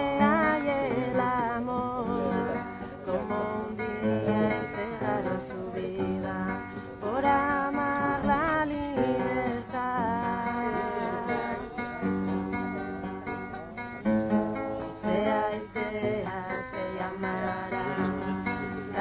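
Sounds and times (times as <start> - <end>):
woman singing: 0.0 - 12.6, 14.8 - 19.0
acoustic guitar: 0.0 - 19.0.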